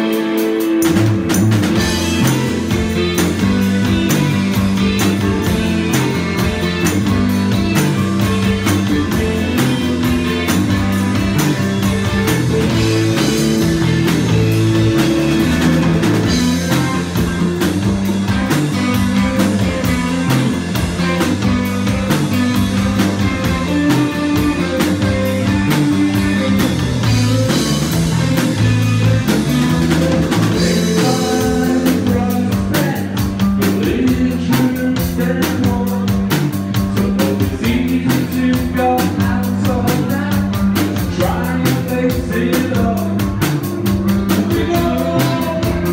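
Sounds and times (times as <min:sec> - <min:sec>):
live rock band: 0:00.0 - 0:45.9
man singing: 0:30.5 - 0:43.4, 0:44.3 - 0:45.9.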